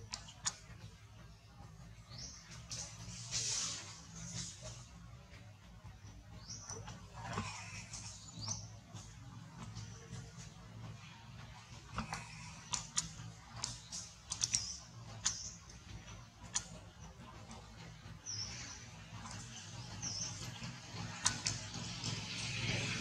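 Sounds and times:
sharp clicks: 0.0 - 0.9, 11.6 - 22.8
low steady hum: 0.0 - 23.0.

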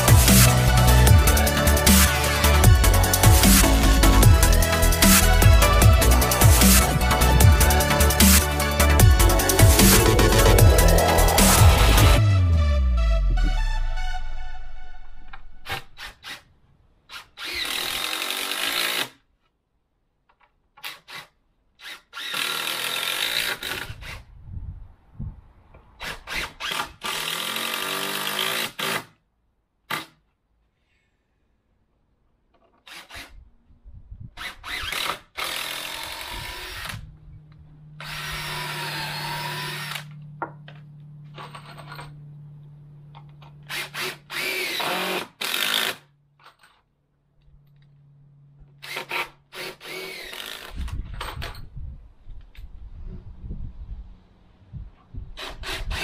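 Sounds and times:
steady low hum: 0.0 - 15.6, 36.4 - 44.3
cordless drill whining into timber: 0.1 - 12.2, 15.6 - 16.5, 17.1 - 19.2, 20.8 - 24.3, 26.0 - 29.2, 32.7 - 33.4, 34.4 - 37.1, 38.0 - 40.2, 43.4 - 46.1, 48.7 - 51.0, 55.4 - 56.0.

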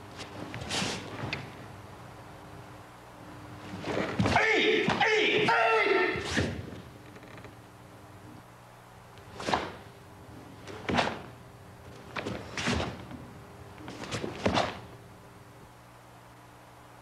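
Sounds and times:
low steady hum: 0.0 - 17.0
slaps and thuds of strikes: 9.4 - 9.8, 10.8 - 11.3.

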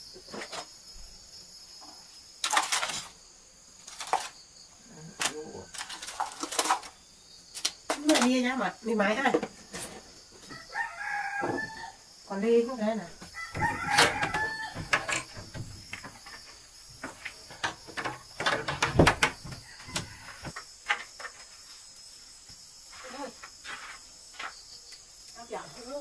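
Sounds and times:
rooster crowing: 10.4 - 12.1, 13.3 - 15.9, 19.4 - 20.6
wardrobe doors clicking and knocking: 13.4 - 21.0.

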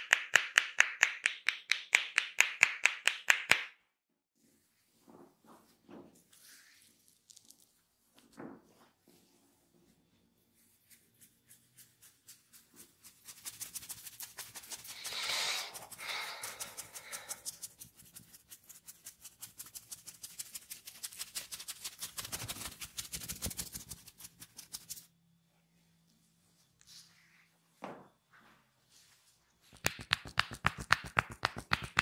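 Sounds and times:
fingertips scratching hair: 10.6 - 25.1.

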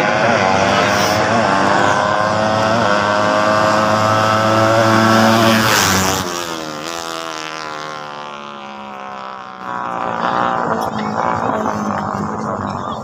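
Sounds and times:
racing motorcycle engines full throttle: 0.0 - 13.0.

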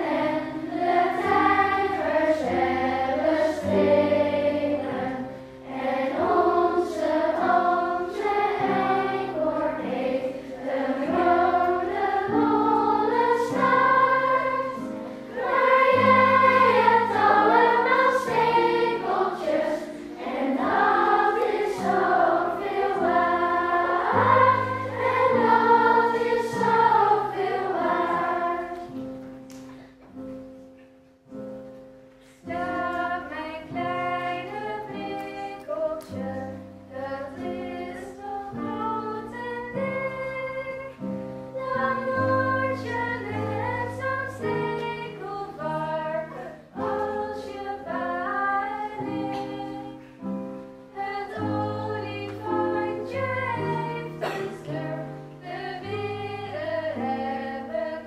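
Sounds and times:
children's choir singing: 0.0 - 29.3, 32.3 - 58.0
keyboard: 0.0 - 30.7.

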